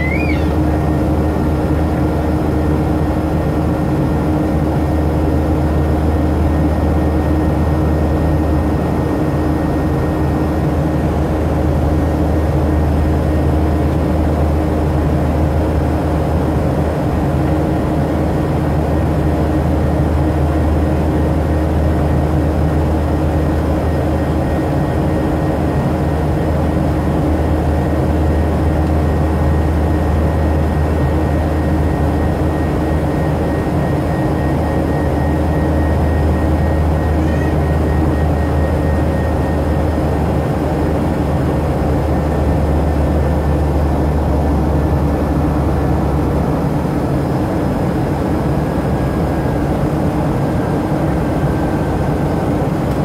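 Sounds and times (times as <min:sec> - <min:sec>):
airliner engine drone: 0:00.0 - 0:53.0
faint constant hums: 0:00.0 - 0:53.0.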